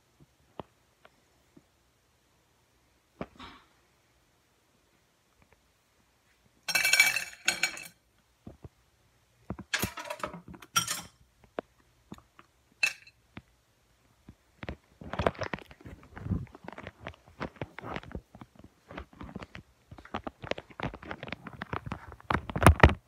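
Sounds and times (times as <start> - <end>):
ice and plastic containers clattering: 6.7 - 8.0, 9.7 - 11.1.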